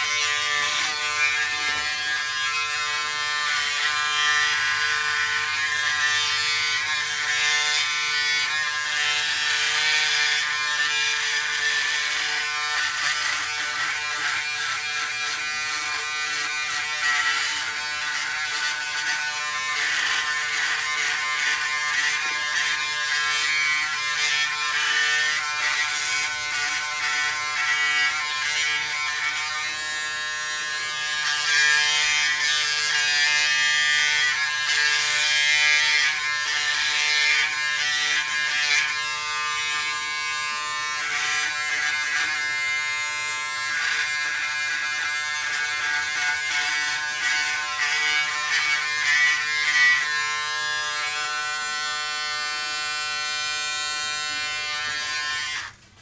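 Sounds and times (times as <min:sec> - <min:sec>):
electric shaver motor hum: 0:00.0 - 0:55.8
whiskers being cut: 0:06.8 - 0:29.8.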